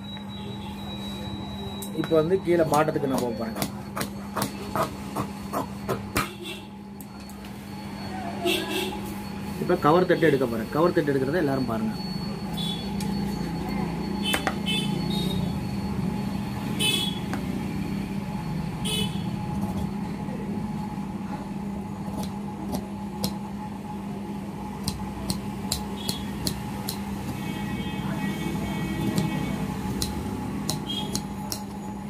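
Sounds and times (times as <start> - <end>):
steady low hum: 0.0 - 32.0.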